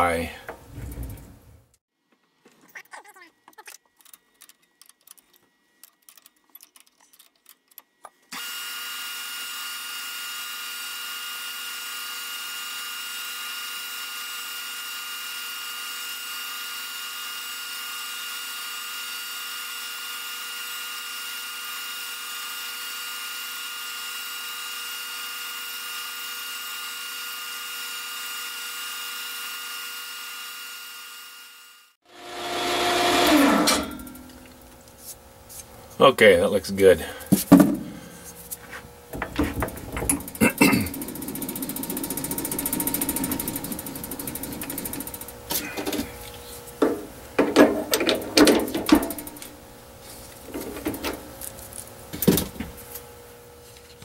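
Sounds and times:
metal lathe whining: 32.1s - 34.6s, 39.1s - 49.6s.

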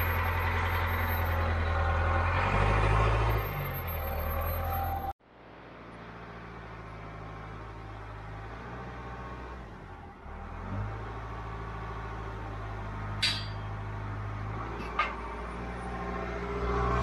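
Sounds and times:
sharp metal clank: 13.2s - 13.8s.

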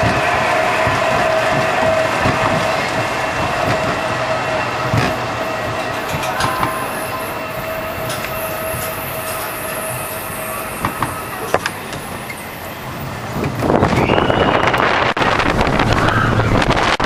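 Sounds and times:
roller coaster wheels whining: 0.0s - 17.0s
wind rushing on microphone: 13.0s - 17.0s.

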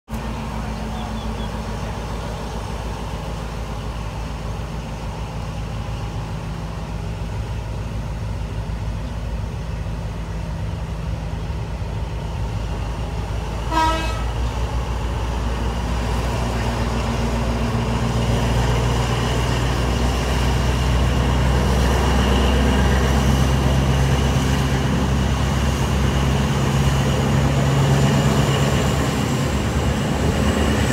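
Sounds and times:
low engine hum: 0.1s - 30.9s
train rumbling on track: 0.1s - 30.9s
train horn toot: 13.7s - 14.4s.

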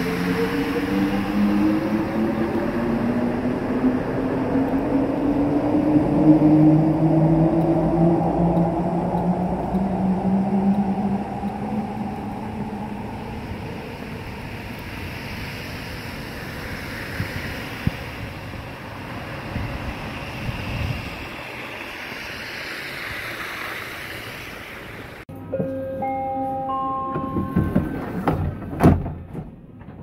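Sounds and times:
wind buffeting microphone: 0.0s - 23.6s
tyres hissing on slushy road: 0.0s - 25.3s
chime-like tones: 25.3s - 28.0s.

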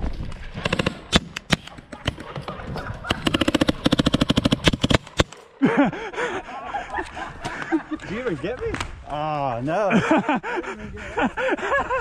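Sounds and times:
paintball markers firing: 0.6s - 5.5s.

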